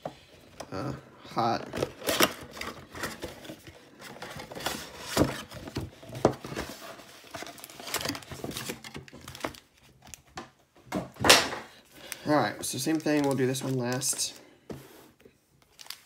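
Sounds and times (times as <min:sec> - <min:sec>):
plastic wrap crinkling: 0:01.8 - 0:10.3, 0:11.9 - 0:14.4, 0:15.6 - 0:16.0
cardboard packaging tearing: 0:06.6 - 0:09.7.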